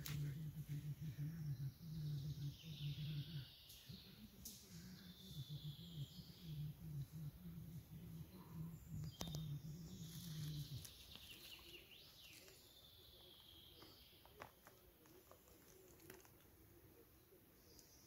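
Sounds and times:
low hum: 0:00.0 - 0:11.6
birds calling faintly: 0:00.0 - 0:18.0
hand digging in soil and grass: 0:09.2 - 0:12.9.

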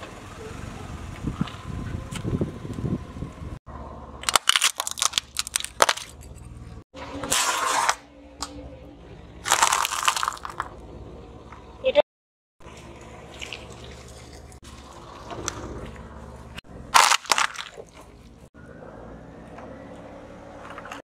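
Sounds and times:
car tyre rumble: 0:00.0 - 0:08.1, 0:08.8 - 0:11.8, 0:12.6 - 0:21.0
corn snacks crunching: 0:04.2 - 0:06.2, 0:09.4 - 0:10.7, 0:17.0 - 0:18.0.

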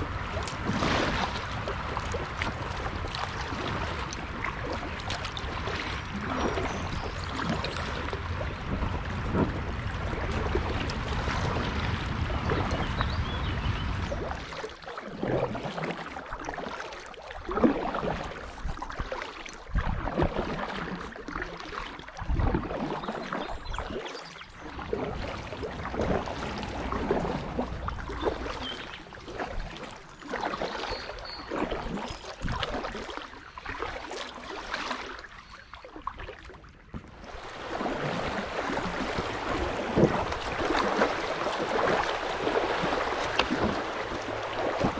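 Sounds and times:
water rushing over rocks: 0:00.0 - 0:16.8, 0:37.1 - 0:44.9
paddle strokes splashing in water: 0:00.0 - 0:44.9.

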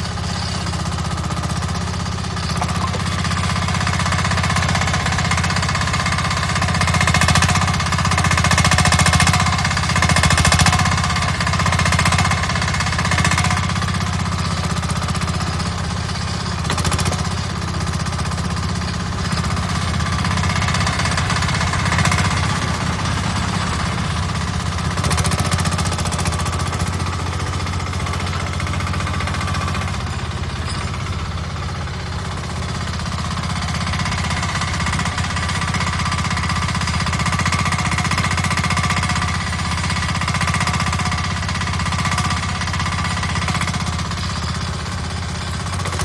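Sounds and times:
diesel engine chugging: 0:00.0 - 0:46.0.

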